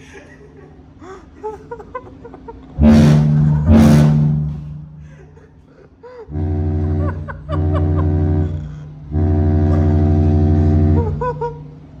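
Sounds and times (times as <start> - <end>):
cruise ship horn blasts: 2.8 - 5.0, 6.3 - 12.0.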